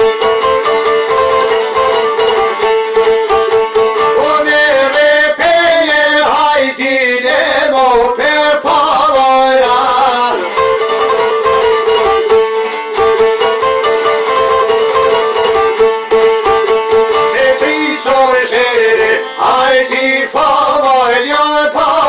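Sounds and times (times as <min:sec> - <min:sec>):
plucked lutes over drone: 0:00.0 - 0:22.0
man singing: 0:04.0 - 0:12.3, 0:17.2 - 0:22.0.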